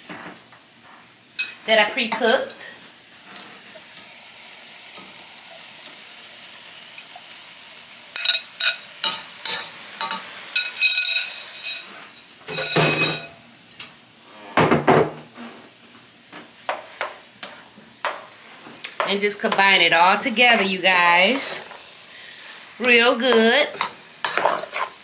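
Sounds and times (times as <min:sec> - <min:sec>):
rice sizzling in pot: 0:00.0 - 0:13.8, 0:15.3 - 0:25.0
spoon and bowl clinking on pot: 0:05.0 - 0:11.9, 0:12.5 - 0:13.4.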